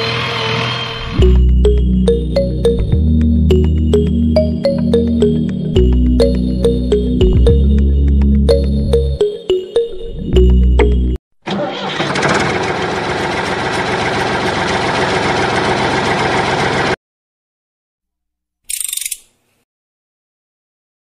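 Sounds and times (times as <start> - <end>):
electric toy motor rattling: 18.7 - 19.2.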